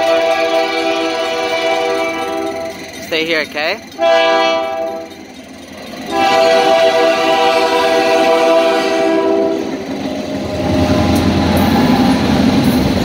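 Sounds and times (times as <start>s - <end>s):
locomotive air horn blast: 0.0s - 2.7s, 4.0s - 5.1s, 6.1s - 9.7s
locomotive rolling over crossing: 0.0s - 13.0s.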